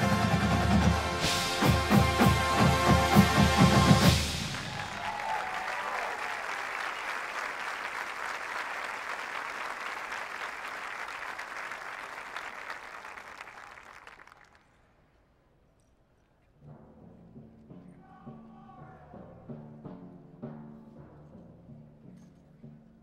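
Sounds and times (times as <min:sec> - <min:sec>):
stadium crowd applauding: 0:03.3 - 0:14.9.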